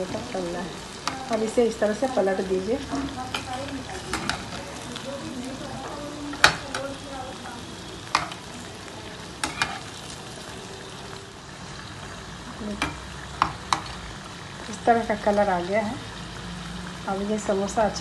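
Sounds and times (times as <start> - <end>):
deep-frying sizzle in oil: 0.0 - 18.0
spatula knocking against pan: 5.9 - 6.8.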